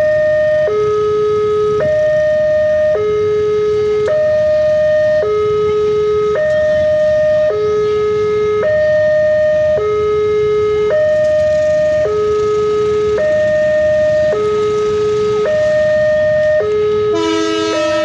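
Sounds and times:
traffic rumble: 0.0 - 18.0
two-tone warning siren: 0.0 - 18.0
horn: 17.2 - 18.0.

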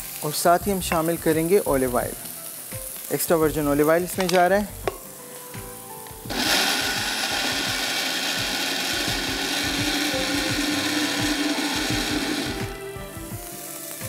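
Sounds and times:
electric blender running: 6.3 - 12.8.

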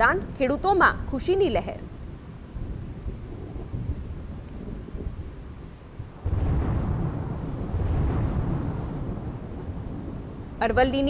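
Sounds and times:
rain: 0.0 - 11.0
rumbling thunder: 1.8 - 11.0
thunder peal: 6.0 - 10.6.

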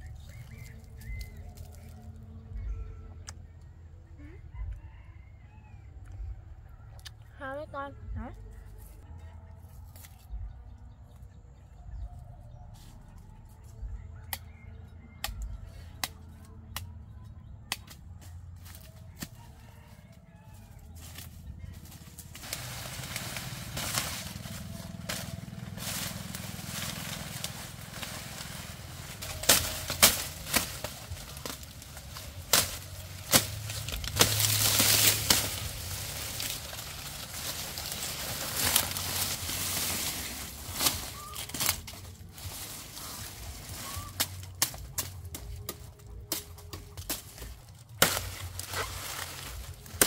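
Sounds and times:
sharp snaps among dry leaves: 0.0 - 2.2, 9.7 - 10.4, 13.0 - 19.5, 21.0 - 50.0
dry leaves rustling and crackling: 0.0 - 2.5, 18.6 - 50.0
blade chopping cane stalks: 9.8 - 10.3, 17.7 - 18.0, 18.6 - 19.5, 21.0 - 50.0.

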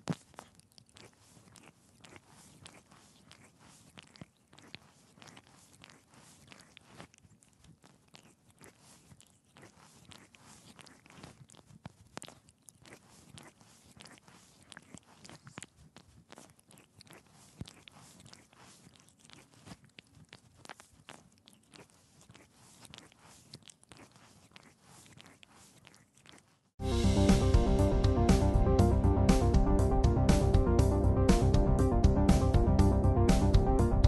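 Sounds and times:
animal licking its fur: 0.0 - 26.6.

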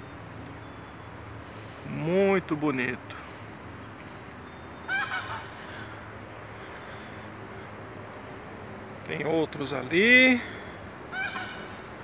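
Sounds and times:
duck or goose honking: 4.9 - 5.5, 11.1 - 11.7.

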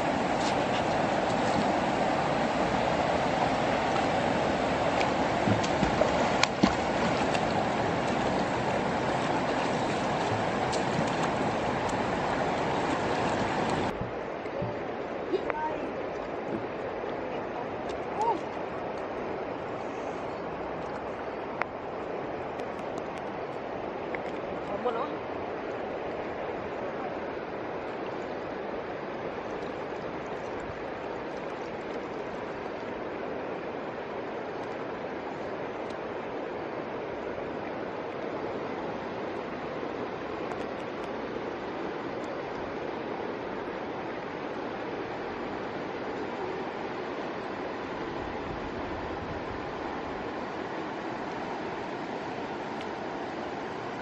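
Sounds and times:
people wading through water: 0.0 - 26.4
running water rushing: 0.0 - 54.0.

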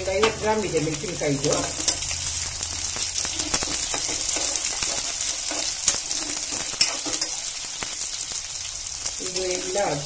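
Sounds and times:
vegetables sizzling in hot oil: 0.0 - 10.0
metal spoon scraping a pan: 0.1 - 8.1.

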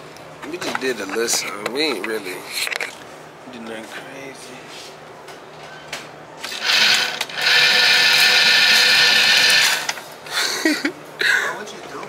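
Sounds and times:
electric motor whining: 6.4 - 10.0.

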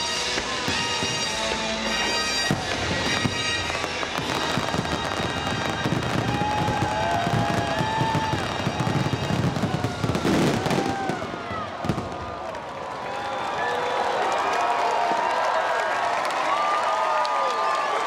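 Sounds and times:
show music: 0.0 - 6.9
fireworks bursting and crackling: 0.0 - 13.2
crowd whooping and cheering: 0.0 - 18.0.

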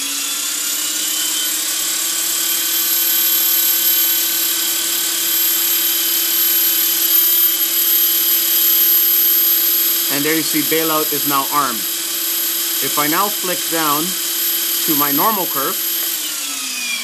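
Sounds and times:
electric motor whine: 0.0 - 17.0.

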